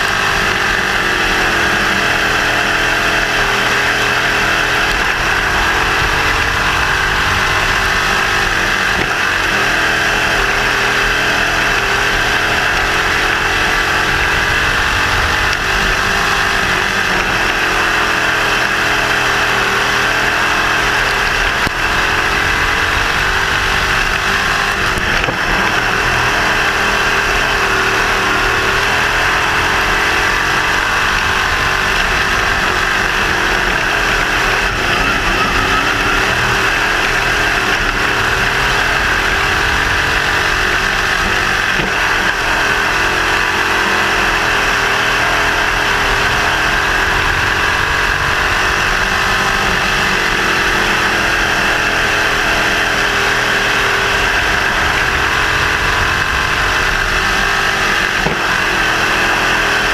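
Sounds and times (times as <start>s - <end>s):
racing car engine running hard: 0.0s - 59.9s.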